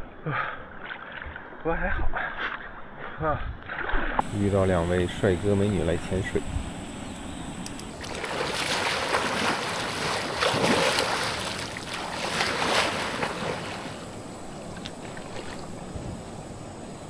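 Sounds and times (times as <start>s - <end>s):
water splashing from swimmer: 8.0s - 14.0s
water lapping: 8.0s - 16.4s.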